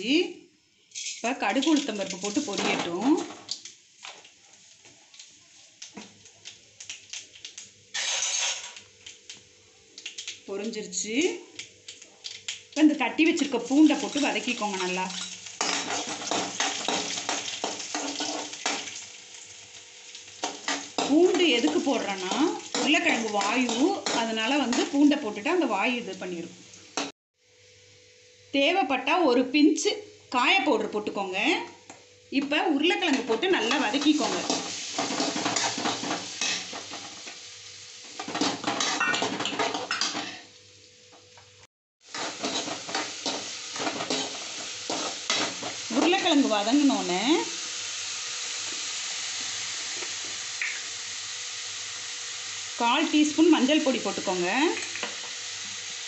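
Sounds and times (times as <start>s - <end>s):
garlic frying in hot oil: 0.0s - 56.0s
steel spoon scraping pan: 0.9s - 1.3s, 7.9s - 8.7s, 42.1s - 45.7s
spoon scraping pan: 0.9s - 2.9s, 33.1s - 37.1s, 42.1s - 46.3s.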